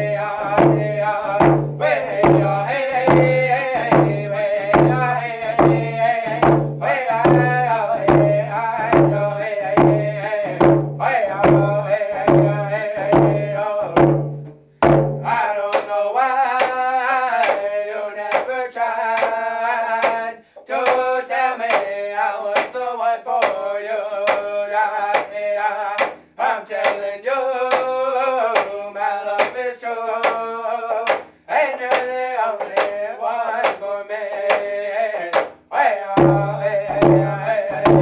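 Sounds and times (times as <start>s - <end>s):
men singing: 0.0s - 14.2s, 15.2s - 38.0s
frame drums beaten: 0.0s - 15.9s, 35.3s - 38.0s.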